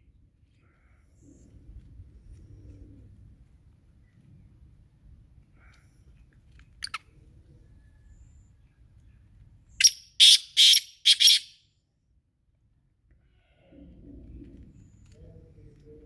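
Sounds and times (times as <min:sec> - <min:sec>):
francolin calling: 0:09.8 - 0:11.6.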